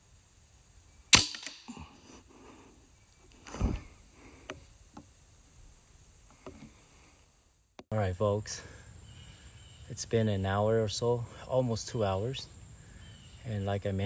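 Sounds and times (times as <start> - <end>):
air rifle shot: 1.1 - 1.7.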